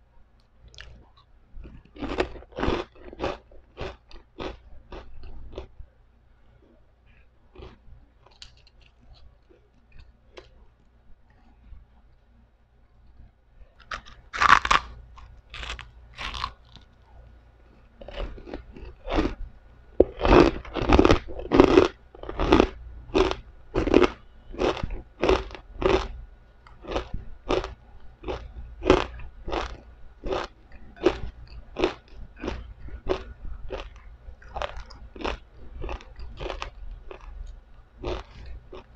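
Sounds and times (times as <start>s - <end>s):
chewing crunches: 0.7s - 5.7s, 7.6s - 10.6s, 13.8s - 17.2s, 17.8s - 19.4s, 20.0s - 38.9s
crunching bites of pork rinds: 1.6s - 5.7s, 7.6s - 10.6s, 13.8s - 17.0s, 18.0s - 19.4s, 20.0s - 38.9s.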